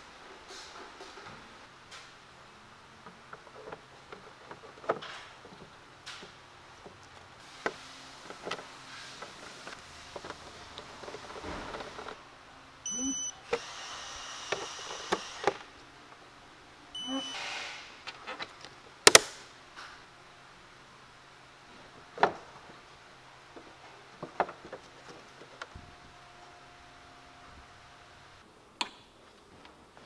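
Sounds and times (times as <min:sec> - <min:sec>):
torque wrench beeps: 0:12.9 - 0:13.4, 0:17.0 - 0:17.7
loud sharp click: 0:19.0 - 0:19.4.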